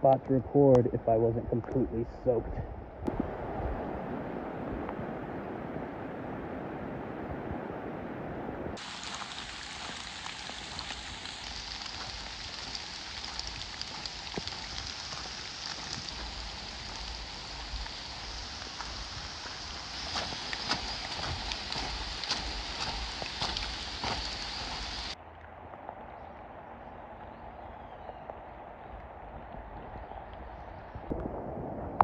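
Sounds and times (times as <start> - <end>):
steady rain hiss: 3.0 - 25.2
faint raindrop ticks: 8.8 - 26.1.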